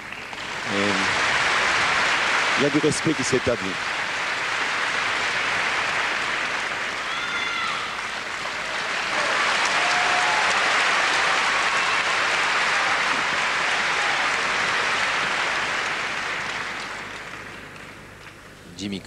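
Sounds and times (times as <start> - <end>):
crowd applauding: 0.0 - 18.5.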